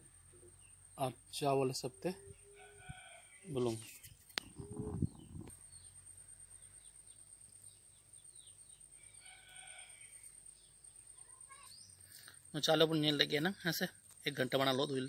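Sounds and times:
small birds chirping: 0:00.0 - 0:15.0
faint chickens calling: 0:04.4 - 0:05.7.

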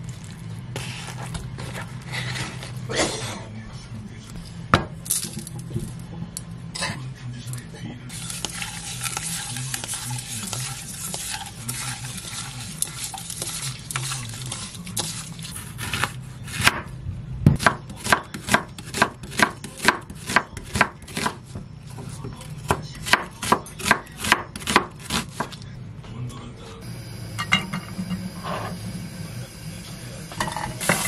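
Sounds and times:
oysters scrubbed with coarse salt: 0:08.1 - 0:15.8
knife chopping on wooden board: 0:15.8 - 0:16.9, 0:17.5 - 0:21.4, 0:22.0 - 0:25.6.

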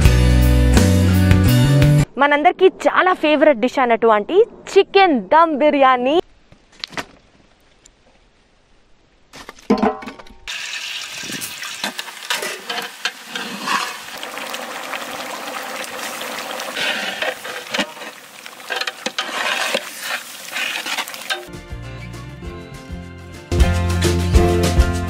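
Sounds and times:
food sizzling in a pot: 0:10.5 - 0:21.5
crackles and clicks: 0:11.4 - 0:21.5.

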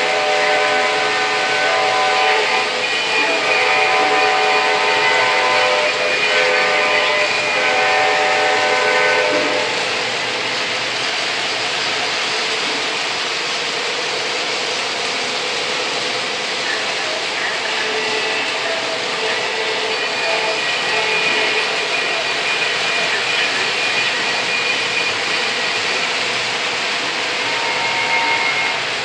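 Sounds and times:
model train horn blasts: 0:00.0 - 0:09.9, 0:27.4 - 0:28.9
model train wheels rumbling: 0:00.0 - 0:29.0.

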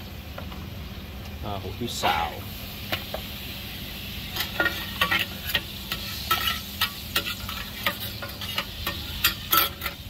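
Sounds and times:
food sizzling: 0:01.2 - 0:10.0
metal spatula scraping a wok: 0:04.2 - 0:10.0.

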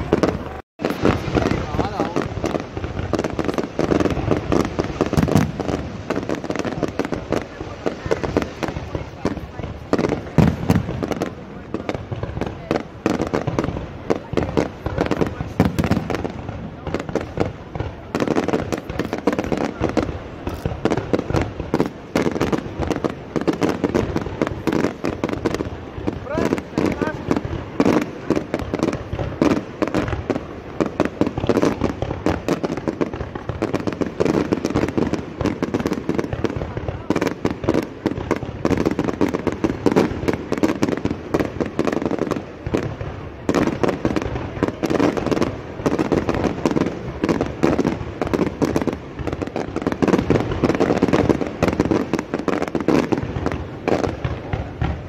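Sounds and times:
fireworks bursting: 0:00.0 - 0:55.0.

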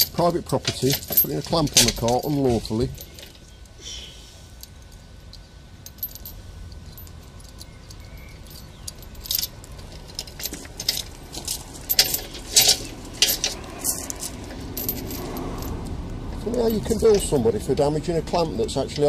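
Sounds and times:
chain and padlock clinking: 0:00.0 - 0:03.6, 0:04.6 - 0:19.0.

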